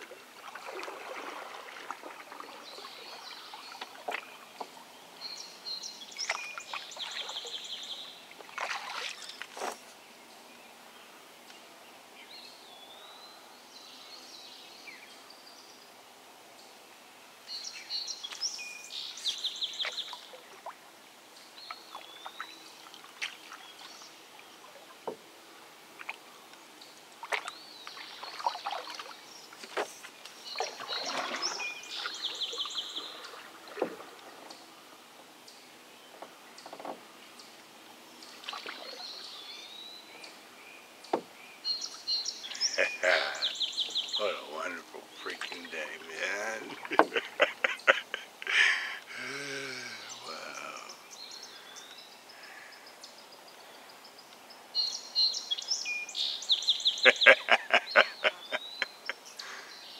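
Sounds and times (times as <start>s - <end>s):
water sloshing against hull: 0.0s - 4.8s, 8.4s - 9.9s, 27.2s - 34.6s
songbirds singing: 0.0s - 59.9s
knocks on canoe hull: 47.0s - 47.2s.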